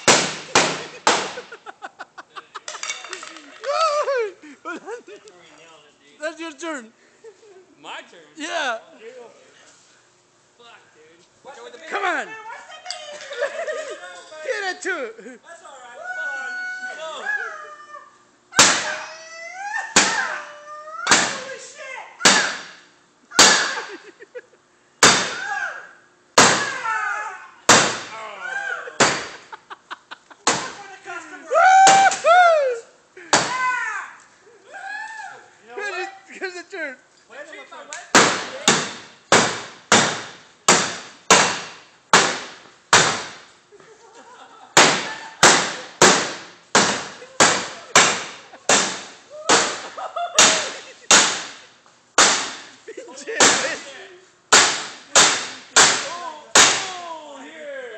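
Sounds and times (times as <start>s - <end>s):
bat hitting sheet metal: 0.0s - 1.5s, 18.6s - 19.0s, 21.1s - 21.5s, 22.2s - 22.8s, 23.4s - 23.9s, 25.0s - 25.4s, 29.0s - 29.4s, 38.1s - 43.4s, 44.8s - 51.6s, 52.2s - 52.7s, 53.4s - 53.9s, 54.5s - 57.0s
bat clanging on sheet metal: 2.7s - 3.5s.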